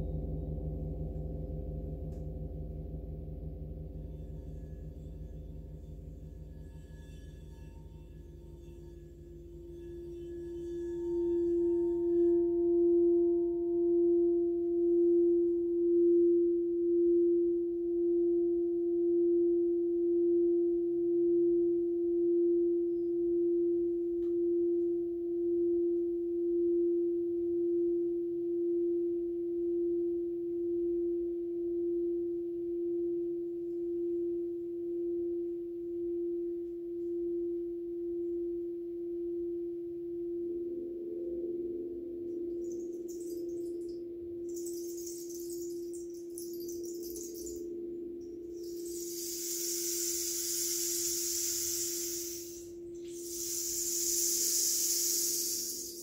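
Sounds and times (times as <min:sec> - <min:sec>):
steady pure ringing tone: 0:00.0 - 0:56.0
fainter higher ringing: 0:03.9 - 0:13.9, 0:40.9 - 0:56.0.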